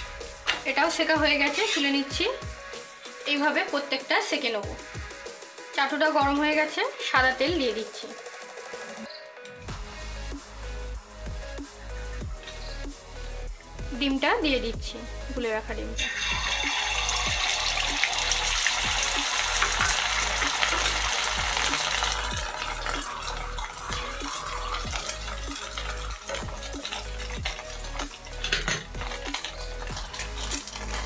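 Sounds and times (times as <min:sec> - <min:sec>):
spatula knocking and scraping: 0:01.4 - 0:02.0, 0:23.9 - 0:31.0
egg sizzling in hot oil: 0:07.0 - 0:09.1, 0:16.0 - 0:31.0.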